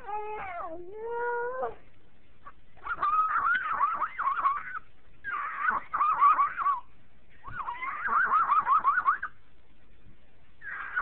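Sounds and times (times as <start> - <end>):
toddler laughing and squealing: 7.5 - 9.3.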